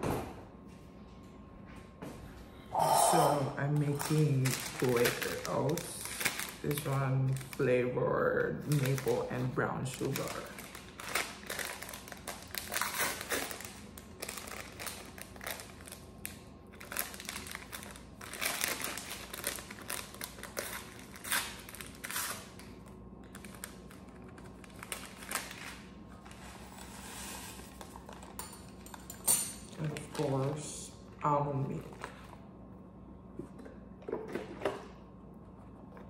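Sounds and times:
paper packet crinkling: 3.6s - 28.4s.

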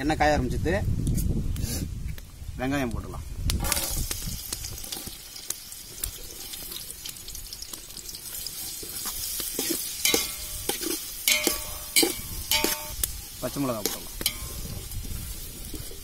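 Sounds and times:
onions sizzling in oil: 3.4s - 16.0s
metal ladle clanking on pot: 10.0s - 13.0s, 13.9s - 14.6s.

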